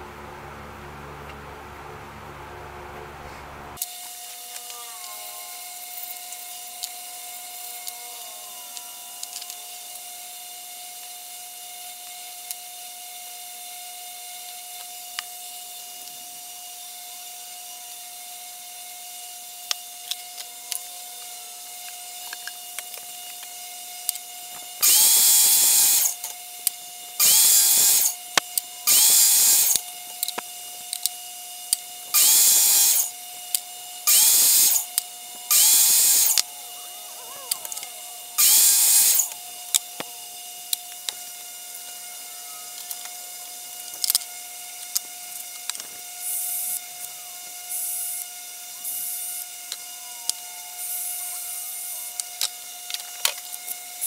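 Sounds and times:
miter saw cutting: 3.8s - 54.0s
small clicks: 19.6s - 54.0s.

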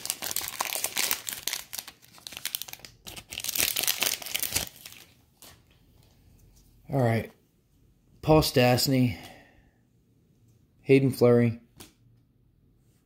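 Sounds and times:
foil wrapper crinkling: 0.0s - 5.6s.

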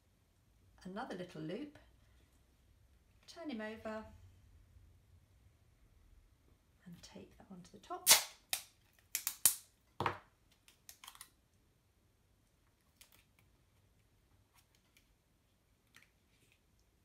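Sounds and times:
sticky tape ripping: 8.0s - 9.7s
tape clicks and rustles: 8.1s - 9.7s, 10.5s - 11.4s, 12.8s - 13.6s.

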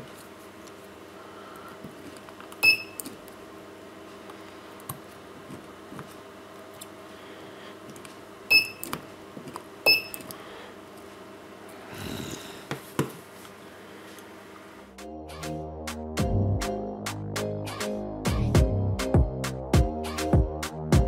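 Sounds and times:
short high beep: 2.6s - 3.0s, 8.5s - 8.8s, 9.9s - 10.2s.

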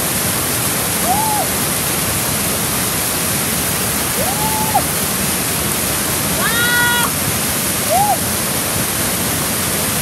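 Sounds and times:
waterfall rushing over rocks: 0.0s - 10.0s
person whooping: 1.0s - 1.5s, 4.2s - 4.9s, 6.4s - 7.1s, 7.9s - 8.2s.

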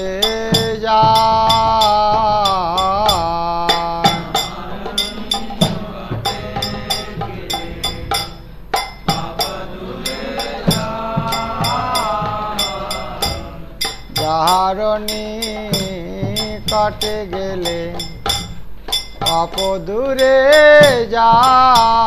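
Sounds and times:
low drum strokes: 0.5s - 14.6s.

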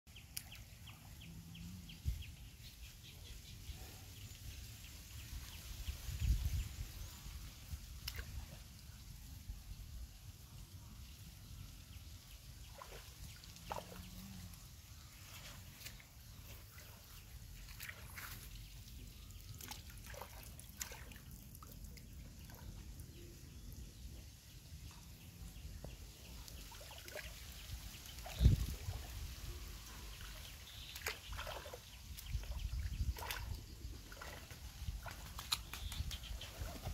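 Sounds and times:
small water splashes: 7.2s - 9.0s, 12.5s - 14.6s, 15.2s - 23.9s, 24.9s - 36.9s
water dripping and trickling: 12.2s - 36.9s.

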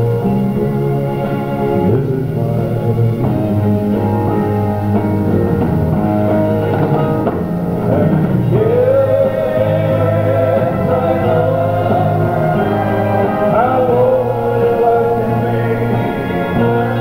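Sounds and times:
live rock band with organ: 0.0s - 17.0s
voice holding long note: 0.0s - 17.0s.

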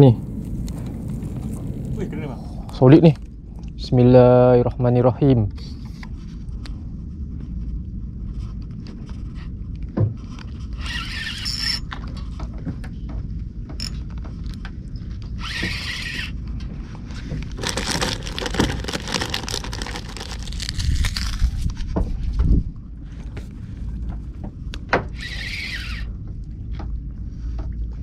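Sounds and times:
steady low rumble: 0.0s - 10.8s, 12.0s - 15.4s, 16.4s - 25.0s, 26.1s - 28.0s
reel clicking and scraping: 10.7s - 12.0s, 15.4s - 16.4s, 25.2s - 26.1s
fishing reel whirring: 10.8s - 11.9s, 15.4s - 16.4s, 25.2s - 26.1s.

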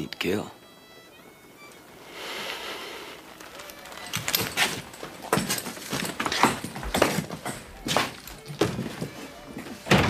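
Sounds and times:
boot footsteps on wooden floor: 3.3s - 10.0s.

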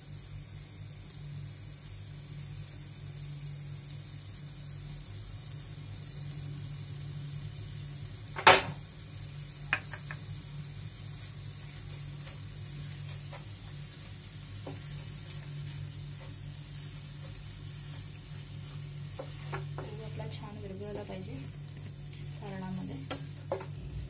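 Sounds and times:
faint sizzling in a pan: 0.0s - 24.0s
low steady hum: 0.0s - 24.0s
spatula knocking against a pan: 9.7s - 10.2s
spatula scraping a pan: 11.6s - 20.1s.

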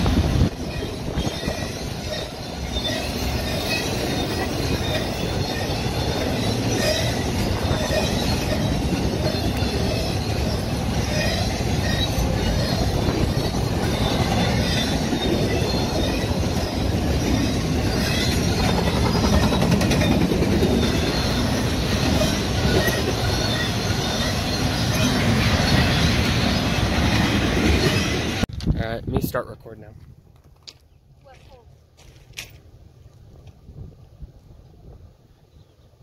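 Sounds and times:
high-pitched wheel squeal: 0.0s - 28.4s
steel wheels rumbling on rails: 0.0s - 28.5s
freight train rolling past: 0.0s - 28.6s.

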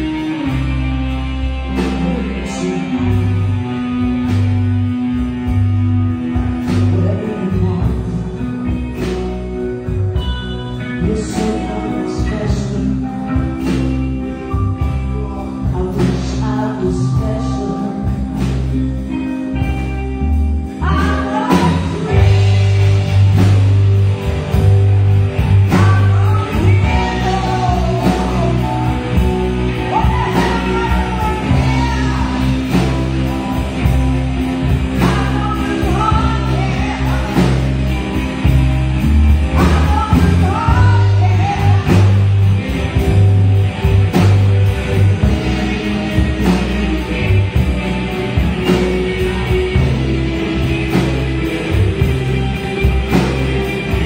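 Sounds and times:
live rock band playing: 0.0s - 54.0s
woman singing: 1.8s - 3.8s, 6.7s - 8.8s, 10.9s - 18.5s, 20.7s - 22.6s, 25.6s - 33.2s, 34.9s - 38.2s, 39.5s - 42.4s.

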